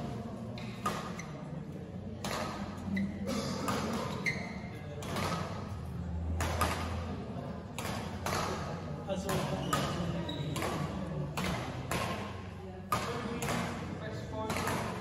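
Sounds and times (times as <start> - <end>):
echoing thuds and taps: 7.7 - 15.0.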